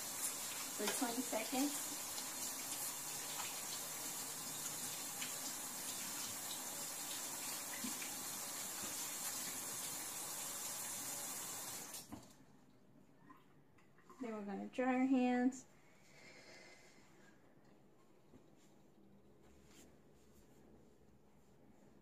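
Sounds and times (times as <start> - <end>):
faucet running into metal sink: 0.0 - 12.3.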